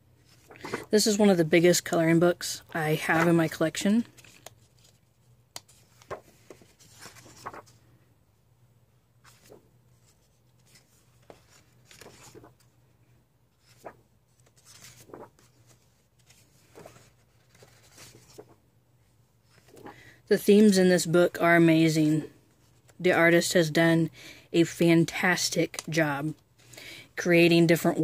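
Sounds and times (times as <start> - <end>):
low steady hum: 0.0 - 28.0
paper pages rustling: 0.2 - 1.0, 2.6 - 7.9, 9.2 - 12.8, 13.5 - 18.6, 19.4 - 20.7.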